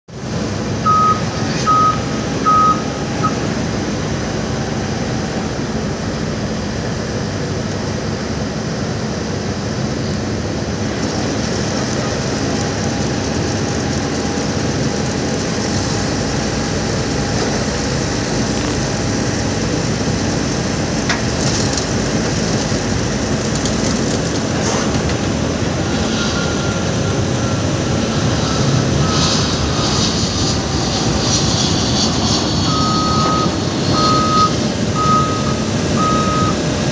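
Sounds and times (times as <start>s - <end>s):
jet engines roaring: 0.1s - 36.9s
short high beeps: 0.9s - 3.4s, 32.7s - 36.6s.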